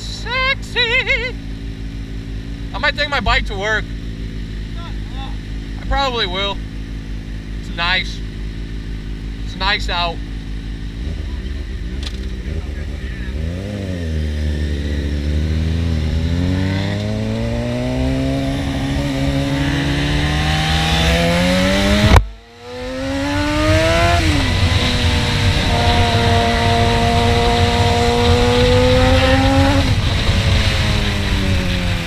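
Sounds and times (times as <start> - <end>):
motorcycle engine accelerating: 0.0 - 32.0
wind noise: 15.8 - 32.0.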